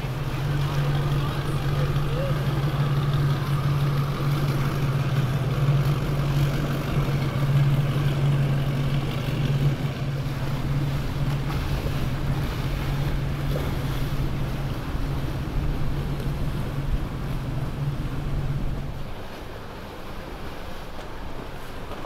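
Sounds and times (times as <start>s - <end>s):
powerboat engines droning: 0.0s - 22.0s
water washing along hull: 0.0s - 22.0s.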